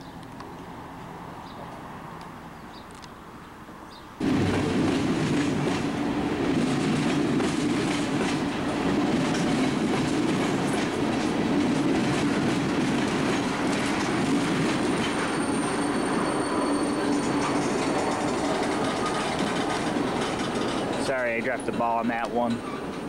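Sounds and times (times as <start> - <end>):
wheels clicking over rail joints: 4.2 - 15.8, 17.0 - 23.0
train wheels rumbling on rail: 4.2 - 23.0
high thin squeal: 15.0 - 18.3.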